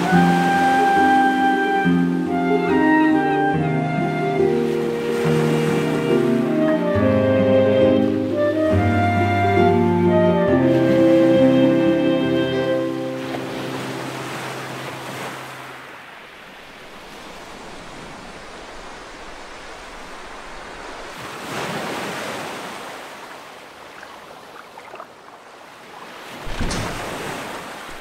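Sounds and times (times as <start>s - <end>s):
waves breaking over rocks: 0.0s - 2.8s, 13.1s - 28.0s.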